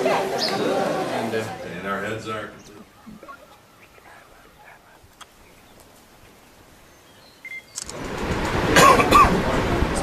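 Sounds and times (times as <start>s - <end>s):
faint bird chirps: 6.4s - 7.8s
loud rushing noise: 7.9s - 10.0s.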